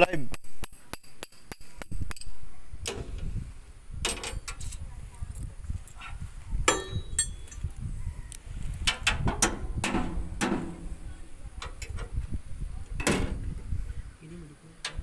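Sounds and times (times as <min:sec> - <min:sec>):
hand tools clinking on metal: 0:06.7 - 0:07.8.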